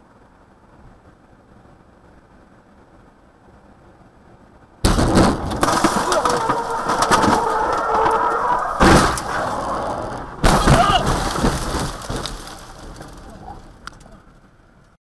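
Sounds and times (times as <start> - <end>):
heavy impact: 4.8 - 13.8
loud car crash: 4.8 - 13.8
metal scraping and grinding: 5.3 - 13.8
shrill squeal: 6.0 - 9.8.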